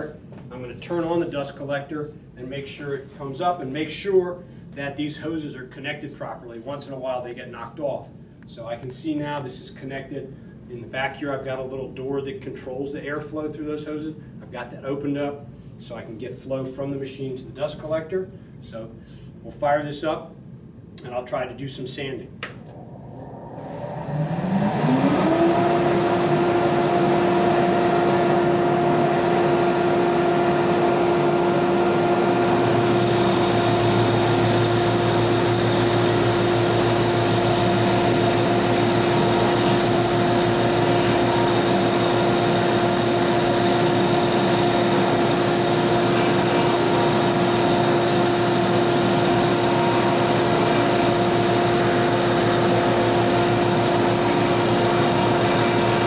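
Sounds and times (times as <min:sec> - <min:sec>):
rush of air: 0:22.5 - 0:26.1
dust collector motor whining: 0:22.5 - 0:56.0
belt and disc sander humming: 0:22.7 - 0:56.0.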